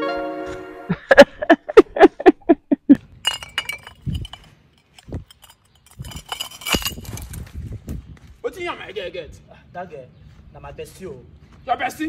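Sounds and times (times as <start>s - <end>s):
glass bottles clinking: 3.1s - 7.3s.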